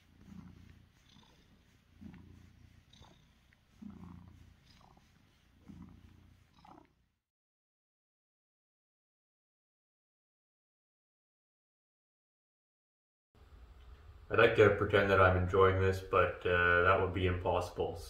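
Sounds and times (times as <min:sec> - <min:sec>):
cat purring: 0:00.0 - 0:07.2.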